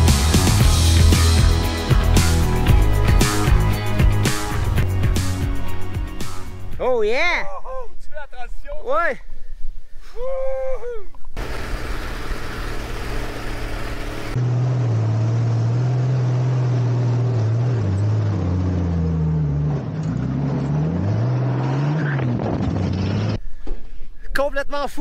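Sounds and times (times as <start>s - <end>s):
dune buggy engine revving: 11.4s - 23.4s.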